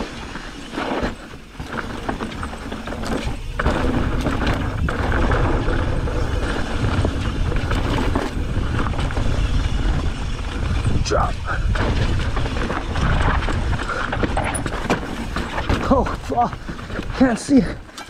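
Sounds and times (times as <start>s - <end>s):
bike tyres rattling over rocks: 0.0s - 18.0s
wind rushing over microphone: 3.3s - 17.2s.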